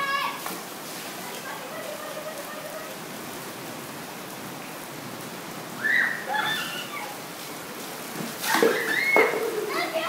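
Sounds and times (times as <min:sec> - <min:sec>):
child shouting: 0:00.0 - 0:00.4, 0:08.7 - 0:10.0
rain falling on patio and pool: 0:00.0 - 0:10.0.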